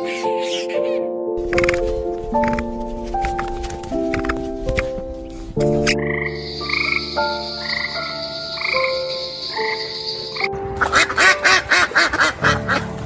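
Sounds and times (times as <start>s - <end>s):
frog trilling: 1.4s - 3.3s, 5.6s - 11.8s
ducks quacking: 1.4s - 13.0s.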